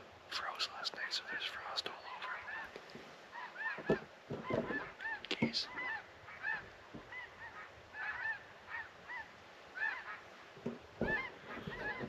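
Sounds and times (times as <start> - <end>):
geese honking: 2.4 - 12.0
low thumps: 3.8 - 5.6.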